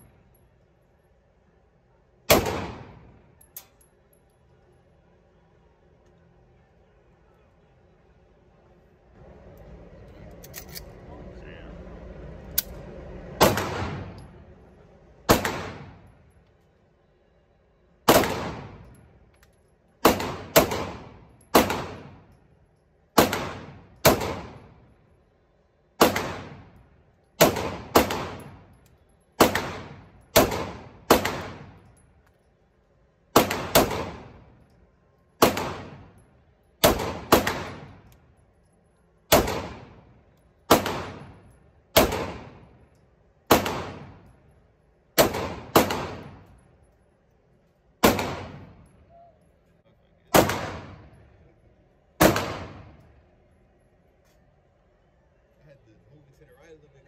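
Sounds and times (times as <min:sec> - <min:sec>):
pistol shots echoing: 0:02.3 - 0:03.2, 0:13.4 - 0:14.2, 0:15.3 - 0:16.0, 0:18.1 - 0:18.9, 0:20.0 - 0:22.3, 0:23.2 - 0:24.8, 0:26.0 - 0:26.8, 0:27.4 - 0:28.7, 0:29.4 - 0:31.9, 0:33.3 - 0:34.5, 0:35.4 - 0:36.2, 0:36.8 - 0:38.1, 0:39.3 - 0:40.1, 0:40.7 - 0:42.8, 0:43.5 - 0:44.3, 0:45.2 - 0:46.6, 0:48.0 - 0:48.9, 0:50.3 - 0:51.2, 0:52.2 - 0:53.0.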